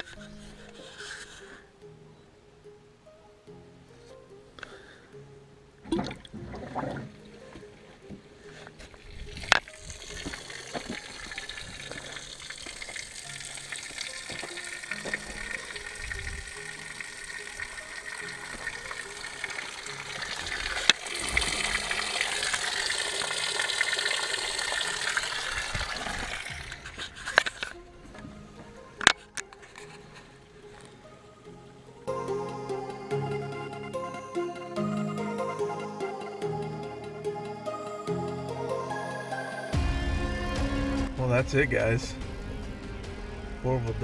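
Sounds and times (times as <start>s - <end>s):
water gushing out of a drain: 9.7s - 27.6s.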